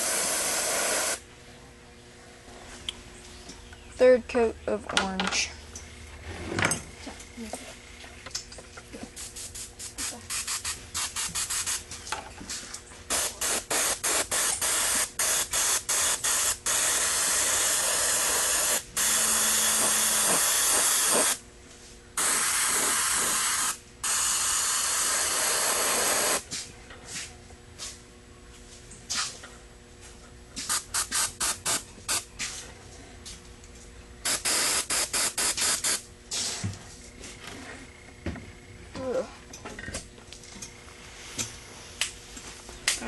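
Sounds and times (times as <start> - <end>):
airbrush spraying hiss: 0.0 - 1.2, 9.2 - 11.8, 13.1 - 21.4, 22.2 - 26.4, 30.6 - 32.2, 34.3 - 36.6.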